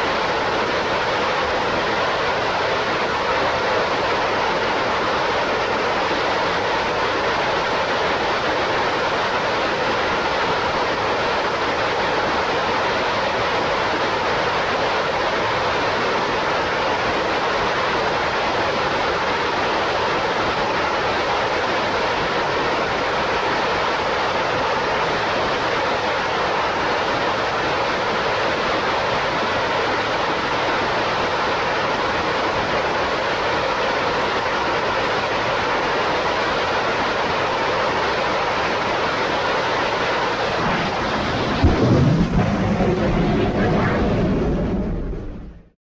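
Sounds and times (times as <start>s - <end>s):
rocket engine exhaust roar: 40.2s - 45.8s.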